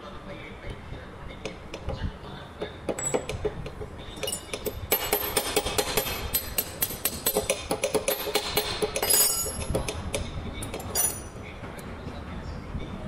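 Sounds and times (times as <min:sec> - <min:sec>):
metal tools clinking: 0:03.0 - 0:03.5, 0:04.1 - 0:10.0, 0:10.6 - 0:11.4.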